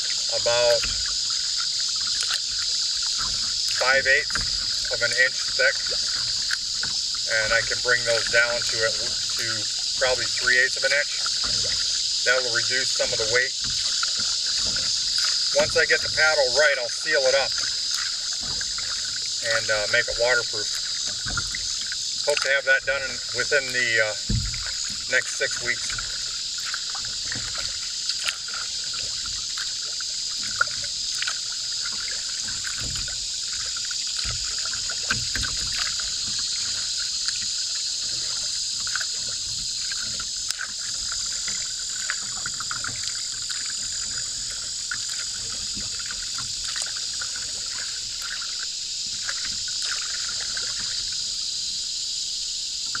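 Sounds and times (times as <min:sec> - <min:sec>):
insects chorus: 0:00.0 - 0:53.0
water trickling and splashing: 0:00.0 - 0:53.0.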